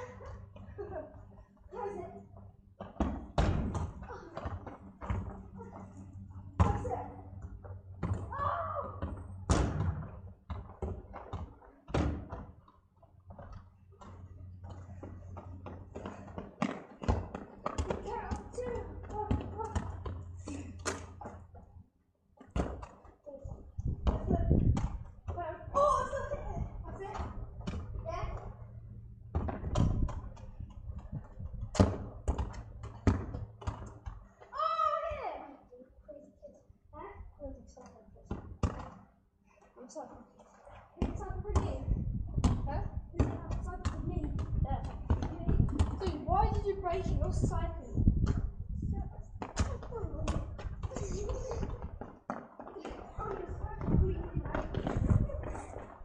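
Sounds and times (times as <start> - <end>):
football kicked and bouncing: 2.4 - 5.9, 6.5 - 21.7, 22.4 - 23.1, 23.8 - 34.3, 38.3 - 39.0, 41.0 - 56.0
football thuds on tarmac: 29.3 - 34.2.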